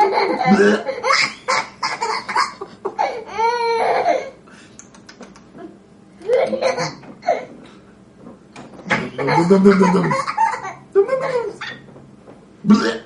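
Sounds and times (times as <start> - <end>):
toddler laughing: 0.0 - 4.4, 6.2 - 7.6, 8.9 - 11.8.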